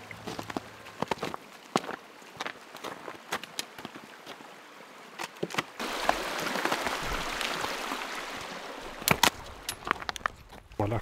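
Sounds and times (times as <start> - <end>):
footsteps on icy snow: 0.0 - 4.5
stream rushing: 0.0 - 10.6.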